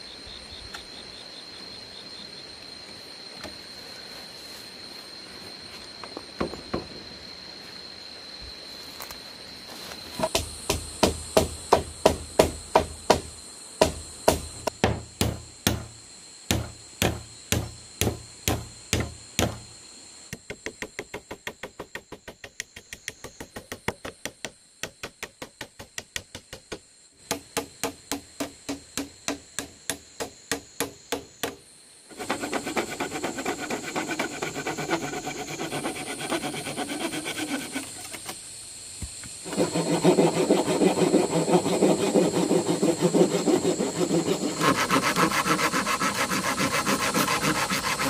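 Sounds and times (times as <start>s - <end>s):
machete chopping bamboo: 10.2s - 19.6s, 20.3s - 31.6s.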